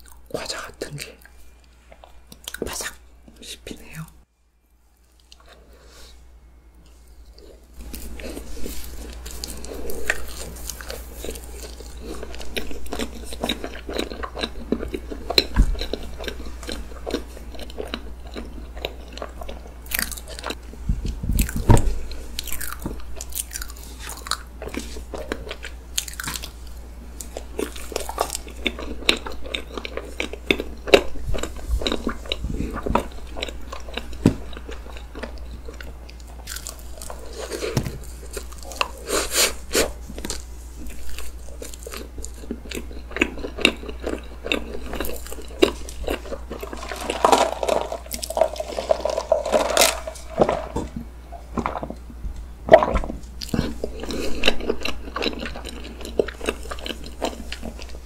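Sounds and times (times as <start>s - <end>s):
chewing and crunching: 5.0s - 5.8s, 7.0s - 58.0s.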